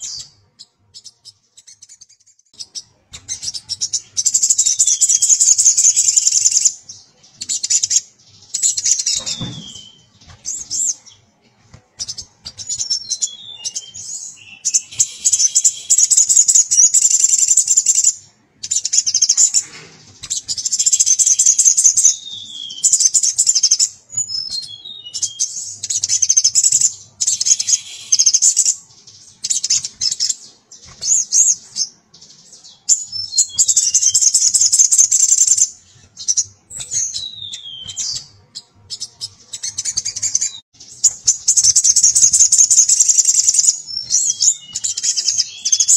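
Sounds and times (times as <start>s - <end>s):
bird chattering twitter: 1.0s - 6.8s, 12.0s - 38.3s, 38.9s - 45.9s
bird whistled notes: 8.6s - 11.0s, 12.0s - 18.1s, 20.2s - 28.8s, 32.6s - 38.3s, 38.9s - 45.9s.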